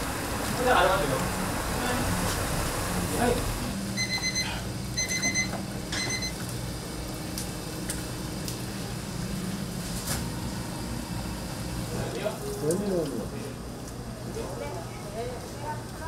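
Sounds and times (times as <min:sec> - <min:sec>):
appliance beeping: 0:03.6 - 0:07.0.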